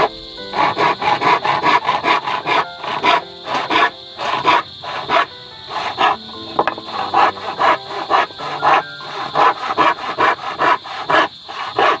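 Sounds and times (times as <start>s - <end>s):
handsaw cutting wood: 0.5s - 6.2s, 6.9s - 12.0s.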